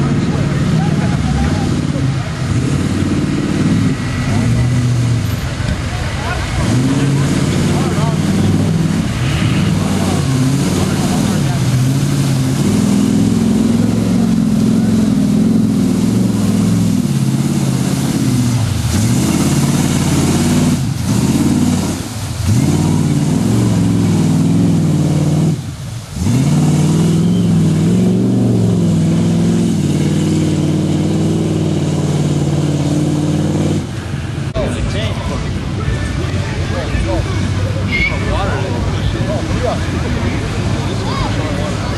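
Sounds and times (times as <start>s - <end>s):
engine revving hard: 0.0s - 5.5s, 6.3s - 33.9s
vehicle churning through mud and water: 0.0s - 41.9s.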